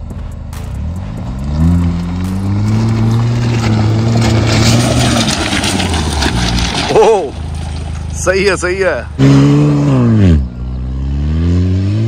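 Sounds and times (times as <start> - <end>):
stones crunching under tyres: 0.0 - 9.2
engine revving: 0.0 - 12.0.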